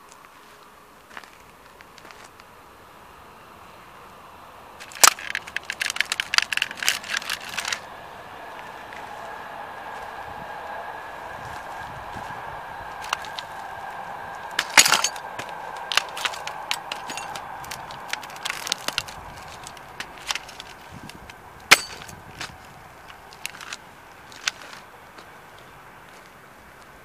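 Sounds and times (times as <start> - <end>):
grit crunching underfoot: 0.0 - 2.6, 4.8 - 9.4, 11.4 - 27.0
toy car cracking under boot: 4.8 - 7.9, 13.0 - 13.5, 14.5 - 24.9.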